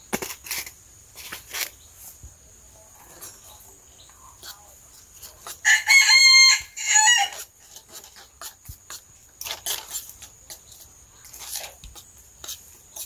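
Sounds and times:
rooster crowing: 0:05.6 - 0:07.5.

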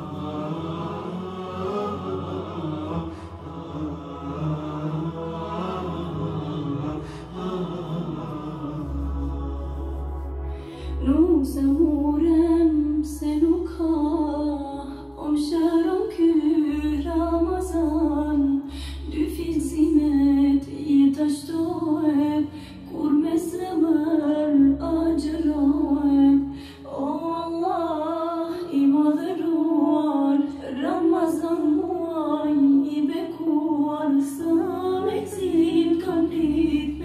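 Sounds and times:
low sustained drone: 0:00.0 - 0:21.0
woman singing: 0:10.8 - 0:37.0.

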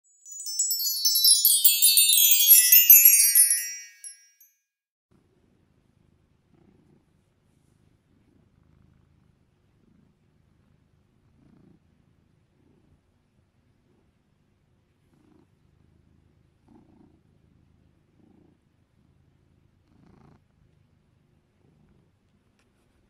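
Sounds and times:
tinkling chime cascade: 0:00.0 - 0:04.5.

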